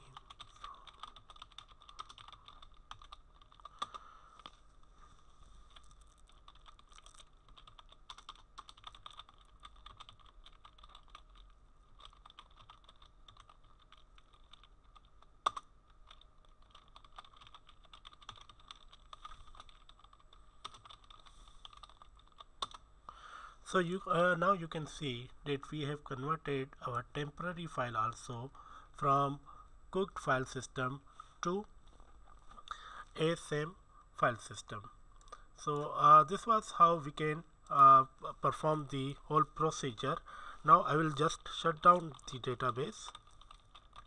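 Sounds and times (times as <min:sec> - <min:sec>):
keyboard typing: 0:00.0 - 0:04.6, 0:05.7 - 0:22.8, 0:39.6 - 0:44.0
faint steady tone: 0:19.0 - 0:44.0.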